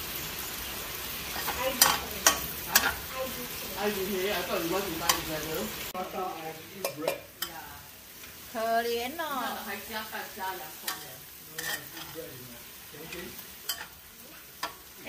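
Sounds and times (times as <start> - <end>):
shallots and garlic sizzling: 0.0 - 15.0
metal spatula scraping wok: 1.2 - 5.4, 10.4 - 14.9.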